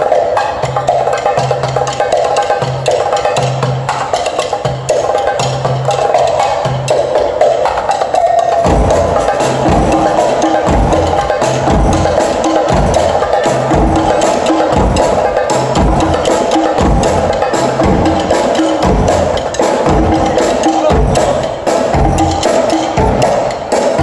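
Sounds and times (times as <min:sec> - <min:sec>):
percussion ensemble playing: 0:00.0 - 0:24.0
heavy low drum hits: 0:08.7 - 0:13.1.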